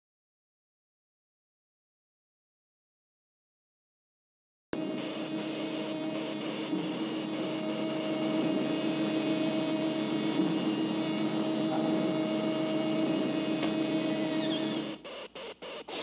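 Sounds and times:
robot head rotor whirring: 12.1 - 16.0.

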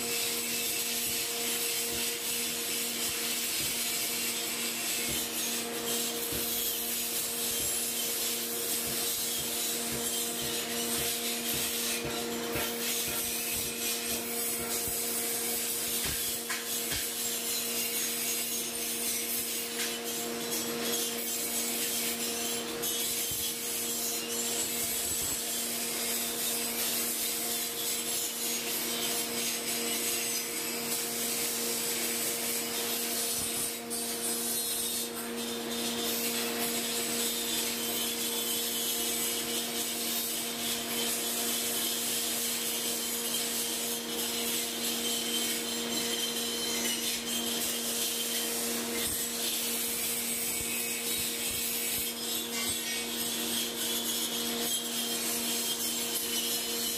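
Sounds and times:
abrasive wheel grinding metal: 0.0 - 56.9.

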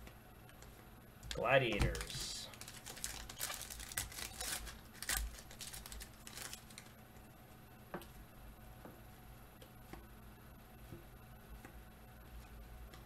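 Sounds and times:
foil wrapper crinkling: 1.3 - 7.0.

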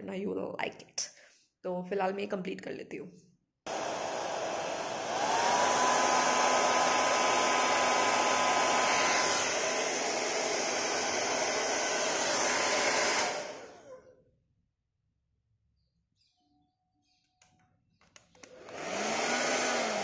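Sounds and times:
hair dryer blowing: 3.7 - 14.0, 18.4 - 20.0.

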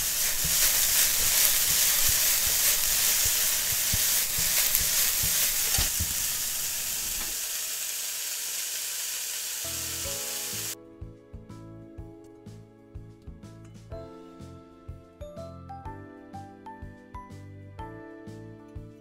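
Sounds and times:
spatula scraping pan: 0.0 - 7.4
food sizzling in frying pan: 0.0 - 10.8
light music: 9.7 - 19.0.

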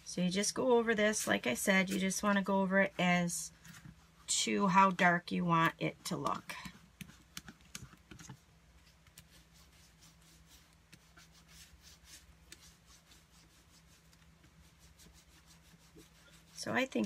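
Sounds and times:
low steady hum: 0.0 - 17.0
foam roller rubbing over cardstock: 9.2 - 17.0.

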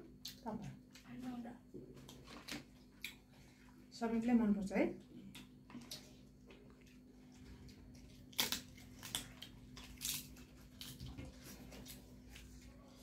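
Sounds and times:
chewing fried chicken: 0.0 - 3.9, 5.0 - 13.0
crunching crisp papad: 7.6 - 13.0.

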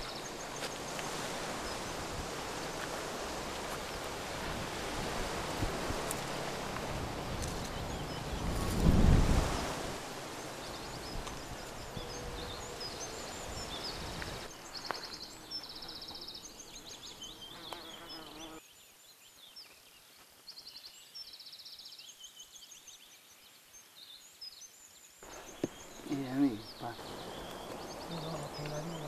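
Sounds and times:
wind on microphone: 0.0 - 14.5
small birds chirping and trilling: 0.0 - 29.0.

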